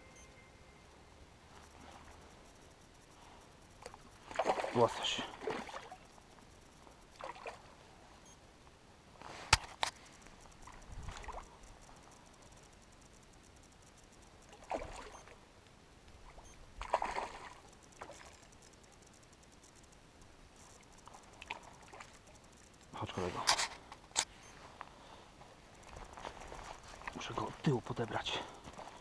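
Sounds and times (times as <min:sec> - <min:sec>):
fish splashing in water: 0:03.8 - 0:06.1, 0:14.5 - 0:15.4, 0:16.3 - 0:18.5.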